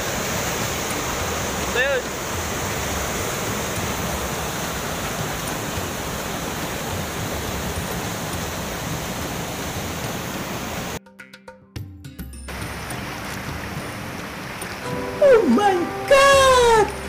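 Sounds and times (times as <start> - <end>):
river rapids rushing over rocks: 0.0 - 11.0, 12.5 - 17.0.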